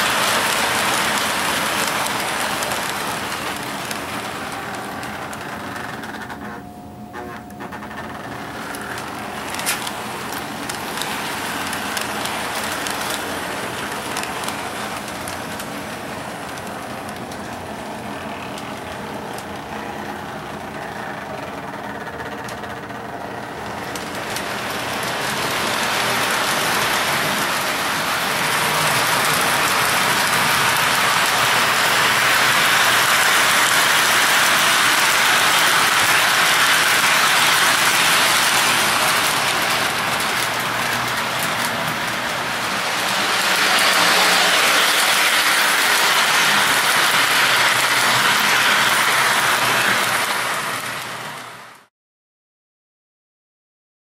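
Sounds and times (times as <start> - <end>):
toy train electric motor whirring: 0.0 - 6.6, 7.4 - 22.9, 23.7 - 51.9
metal wheels rattling on rails: 23.6 - 51.4.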